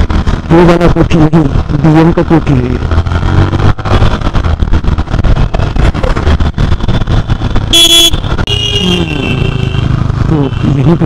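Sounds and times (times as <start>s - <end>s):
motorcycle engine: 0.0s - 11.0s
wind rumble on microphone: 1.5s - 8.5s
vehicle horn honking: 7.7s - 10.0s.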